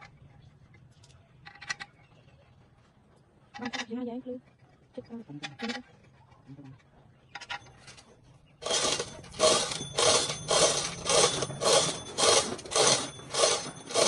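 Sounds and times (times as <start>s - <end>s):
hand tool scraping a surface: 8.6s - 14.0s.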